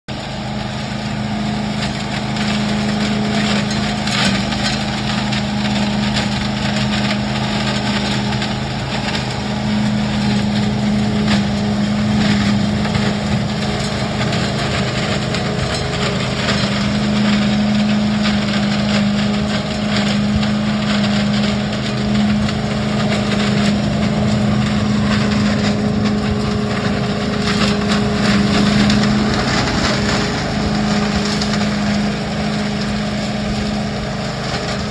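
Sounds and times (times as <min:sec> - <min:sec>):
leaf vacuum engine humming: 0:00.1 - 0:34.9
debris clicking through hose: 0:01.6 - 0:34.9.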